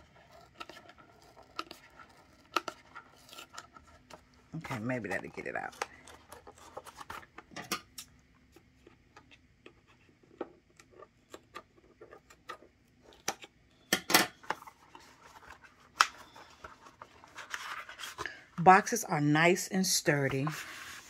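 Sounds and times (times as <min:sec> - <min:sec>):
rustle and scrape: 0:14.6 - 0:18.3, 0:20.1 - 0:21.0.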